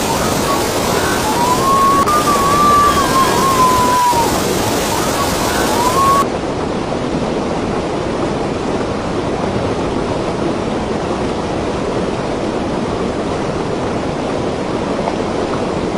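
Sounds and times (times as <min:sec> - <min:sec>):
faint rising whistle tone: 0:00.0 - 0:06.3
water rushing across a road: 0:00.0 - 0:15.9.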